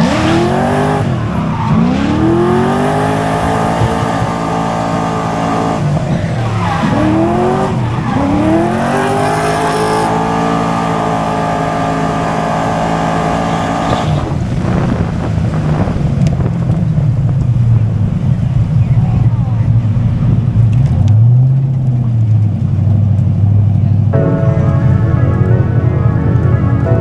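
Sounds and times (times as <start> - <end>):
car engine at full revs: 0.0 - 18.8.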